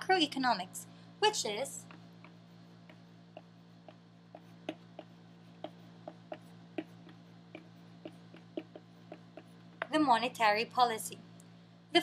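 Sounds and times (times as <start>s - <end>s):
chalk tapping on blackboard: 1.8s - 10.0s.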